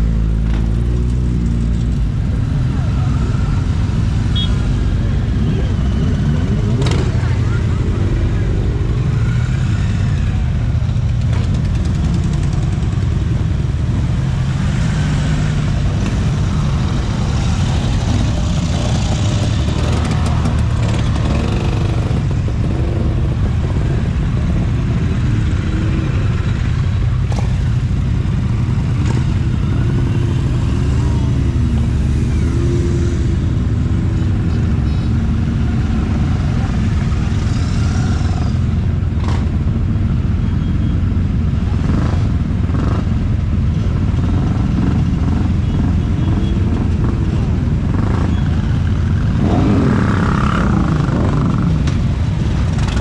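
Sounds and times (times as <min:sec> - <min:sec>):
motorcycles riding past: 0:00.0 - 0:53.0.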